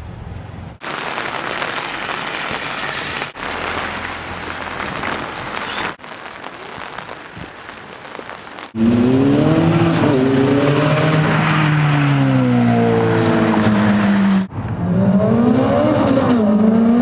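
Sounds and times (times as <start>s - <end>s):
rain falling on wet paving: 0.8s - 8.8s.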